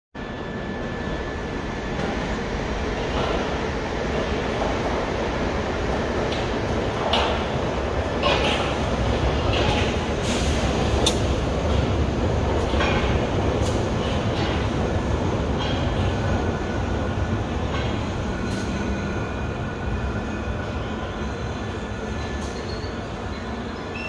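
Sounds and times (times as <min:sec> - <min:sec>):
train wheels rumbling on rails: 0:00.3 - 0:24.0
clanks over the track: 0:05.9 - 0:07.6, 0:08.2 - 0:16.6, 0:17.5 - 0:18.9.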